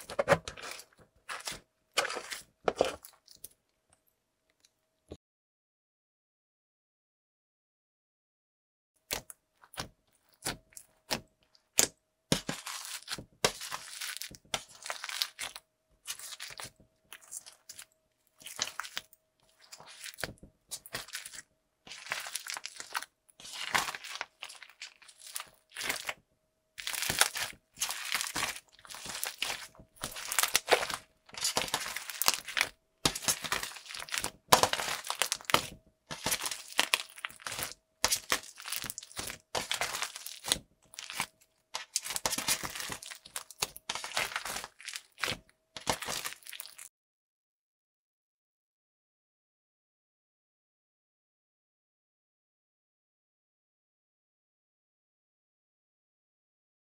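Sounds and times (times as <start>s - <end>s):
crunchy slime crackling: 0.0s - 3.4s, 9.1s - 26.2s, 26.8s - 46.9s.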